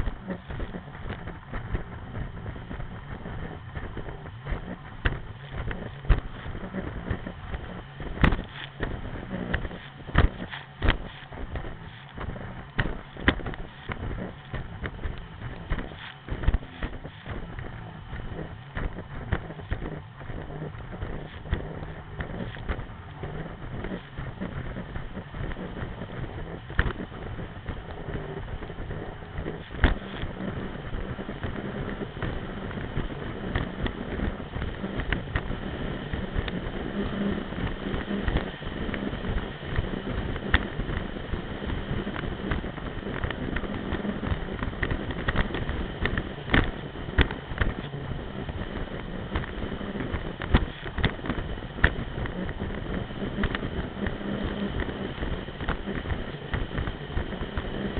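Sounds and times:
jet ski engine drone: 0.0 - 57.9
wind buffeting microphone: 0.0 - 57.9
hull knocking on water: 3.4 - 22.9.

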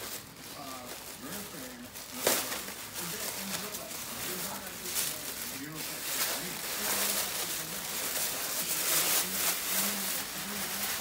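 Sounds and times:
paper and plastic crinkling: 0.0 - 11.0.

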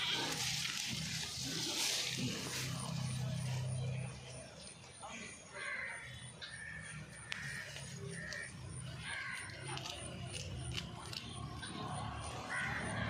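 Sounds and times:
goat chewing leaves: 0.0 - 3.7, 7.4 - 12.5
crows cawing: 5.2 - 10.2, 12.4 - 13.0.

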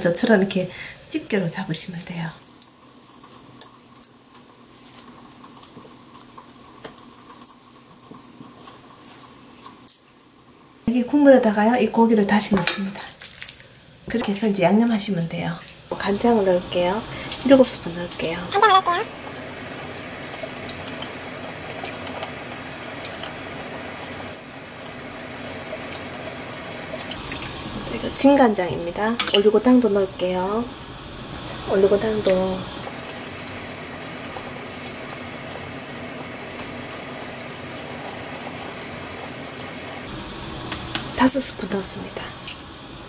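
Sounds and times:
low hiss of stove: 0.0 - 10.0, 10.7 - 43.0.

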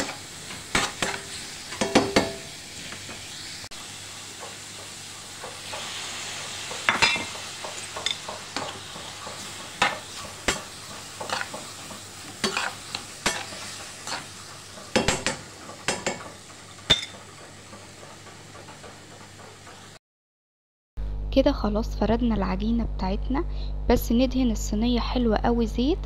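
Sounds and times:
food sizzling in a frying pan: 0.0 - 20.0
utensil scraping a pan: 5.6 - 15.0.

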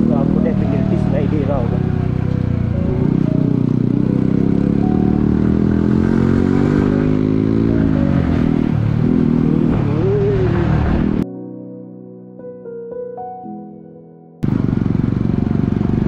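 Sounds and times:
motorcycle engine running: 0.0 - 11.2, 14.4 - 16.0.

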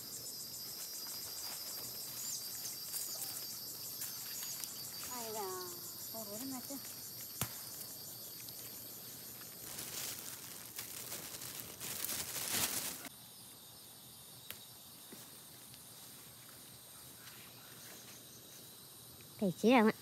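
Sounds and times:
leaves and vines rustling: 0.0 - 13.1
insects chirring: 0.0 - 20.0.

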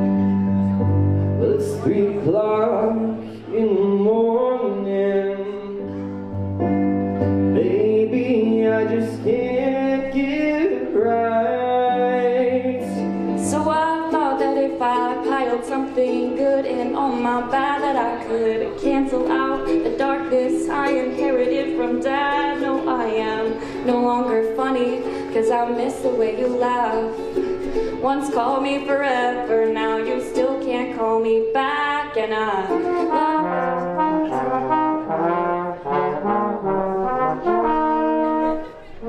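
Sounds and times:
strummed ukulele: 0.0 - 36.4
man singing slow song: 1.3 - 6.3, 7.5 - 27.2
woman singing: 12.8 - 27.2, 27.8 - 33.8.

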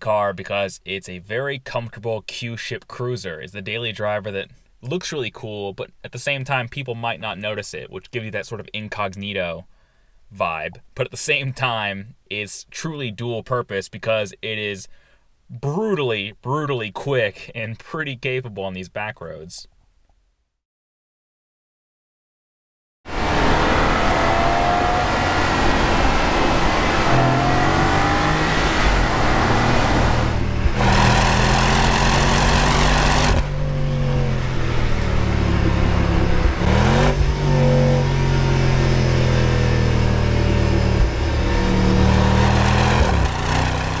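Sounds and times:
car engine revving through gears: 23.1 - 44.0.

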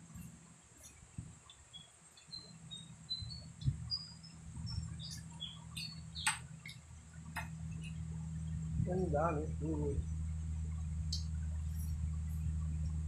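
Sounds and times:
low hum: 0.0 - 13.0
small birds chirping: 0.0 - 13.0.

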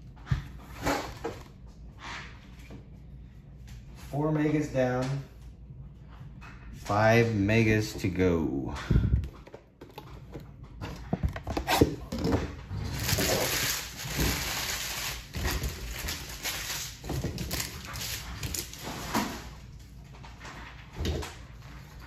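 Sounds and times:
plastic packaging crinkling: 12.8 - 19.0.

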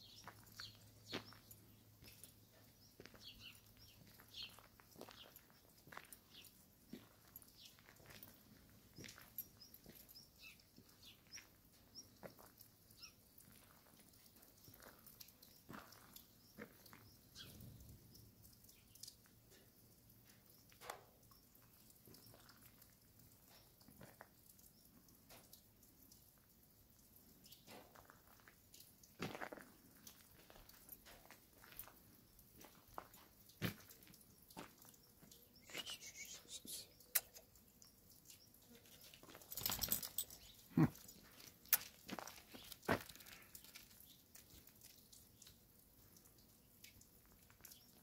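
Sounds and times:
faint ticks and taps: 0.1 - 35.7, 37.0 - 48.0
dog claws clicking and scuffing: 38.9 - 45.0.

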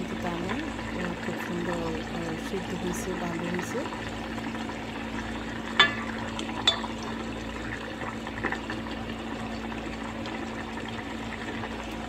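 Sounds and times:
curry simmering and bubbling: 0.0 - 12.0
steady low hum: 0.0 - 12.0.

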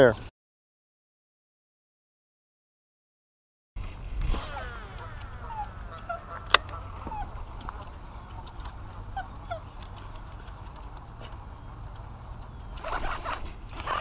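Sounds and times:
reel retrieve: 3.9 - 10.7, 12.7 - 14.0
fishing reel whine: 4.2 - 9.4, 12.7 - 14.0
short high chirps: 4.3 - 7.7.

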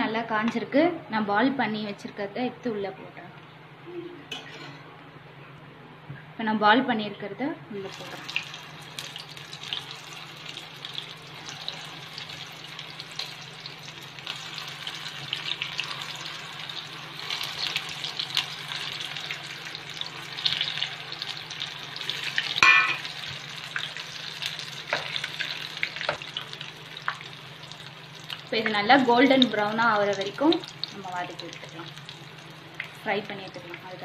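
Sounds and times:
food deep-frying in oil: 7.8 - 34.0.

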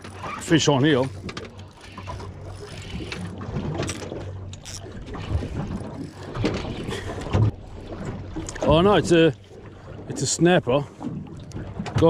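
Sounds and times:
fishing reel cranking: 0.0 - 7.2.

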